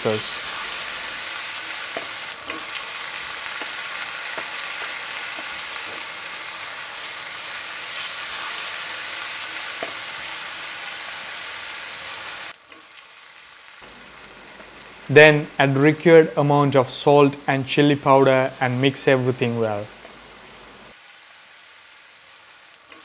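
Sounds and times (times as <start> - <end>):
meat sizzling in hot oil: 0.0 - 15.1, 19.9 - 23.0.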